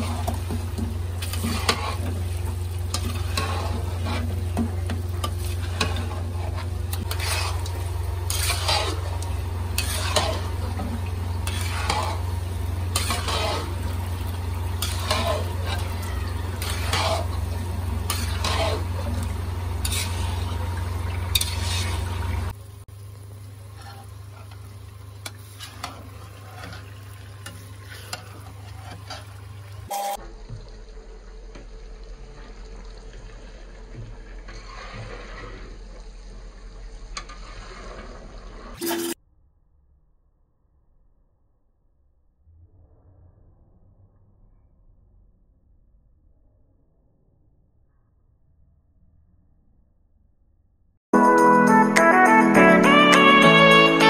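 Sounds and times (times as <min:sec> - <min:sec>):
metal spatula scraping pan: 0:00.0 - 0:22.6, 0:23.7 - 0:30.2, 0:34.4 - 0:36.0, 0:37.2 - 0:39.2
steady low hum: 0:00.0 - 0:26.4.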